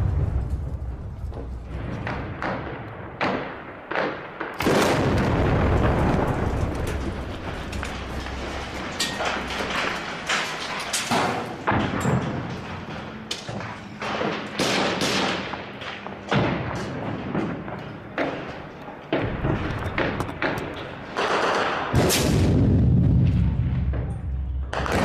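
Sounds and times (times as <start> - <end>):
explosions: 0.0 - 12.9, 19.1 - 25.0
gunfire: 1.7 - 7.1, 14.0 - 17.6, 24.7 - 25.0.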